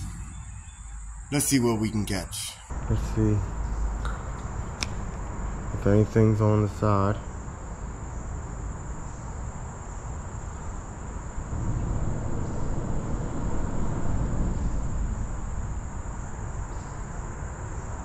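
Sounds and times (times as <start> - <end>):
low rumble: 0.0 - 6.2
crickets trilling: 0.0 - 18.0
low outdoor hiss: 0.0 - 18.0.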